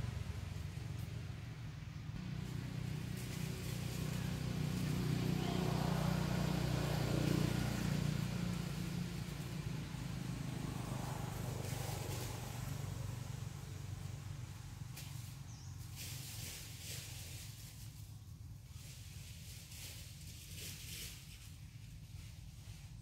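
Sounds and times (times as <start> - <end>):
faint rustles: 0.0 - 8.5, 14.9 - 23.0
low steady rumble: 0.0 - 23.0.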